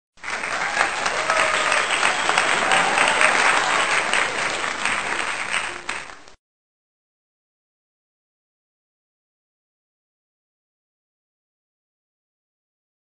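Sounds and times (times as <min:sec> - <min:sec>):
crowd applauding: 0:00.2 - 0:06.4.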